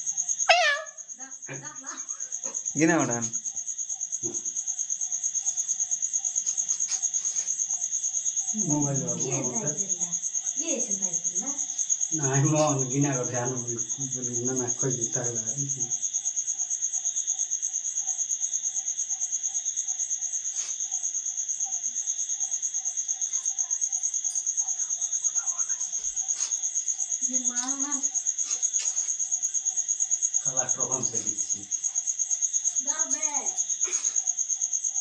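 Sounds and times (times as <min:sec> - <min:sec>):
crickets trilling: 0:00.0 - 0:35.0
voices: 0:00.5 - 0:03.4, 0:08.5 - 0:16.0, 0:23.2 - 0:26.6, 0:27.2 - 0:28.2, 0:30.4 - 0:31.7, 0:32.8 - 0:34.2.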